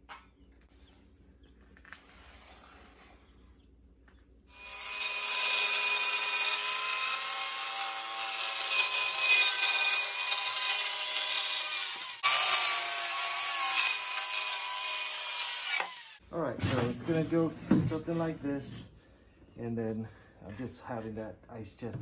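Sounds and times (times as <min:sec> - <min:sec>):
circular saw cutting plywood: 0:04.5 - 0:16.2.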